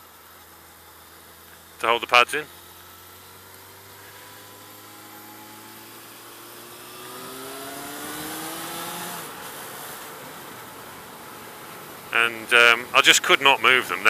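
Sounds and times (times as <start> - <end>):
motorcycle engine accelerating: 0.1 - 11.2.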